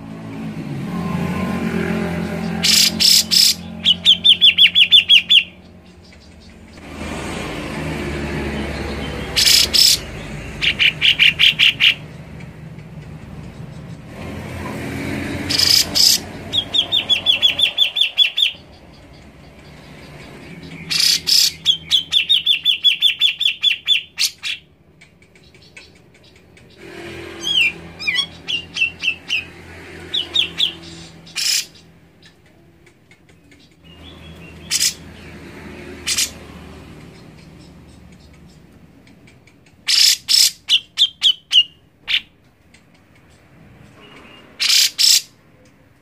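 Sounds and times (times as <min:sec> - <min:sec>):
bird singing chattering notes: 0:02.0 - 0:06.8, 0:08.6 - 0:14.2, 0:15.5 - 0:26.8, 0:30.1 - 0:35.4, 0:36.0 - 0:45.3.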